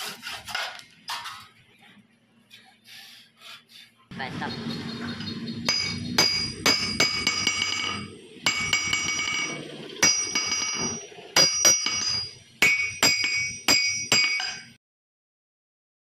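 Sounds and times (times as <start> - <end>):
hammer striking anvil: 5.2 - 14.8.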